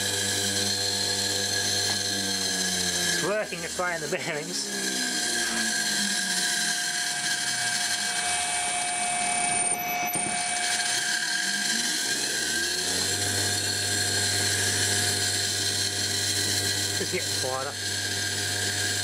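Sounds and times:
steady high whistle: 0:08.2 - 0:11.8
washing machine motor hum: 0:11.6 - 0:19.0.

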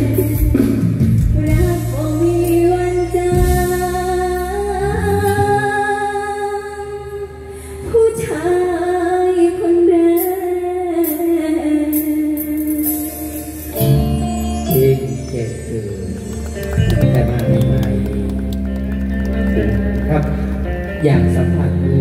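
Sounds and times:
band heavy bass: 0:00.0 - 0:05.9, 0:12.5 - 0:22.0.

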